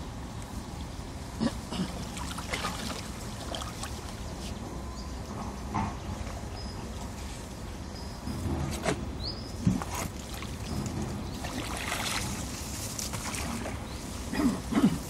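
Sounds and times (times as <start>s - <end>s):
water splashing and trickling: 0.6s - 4.7s, 9.6s - 14.5s.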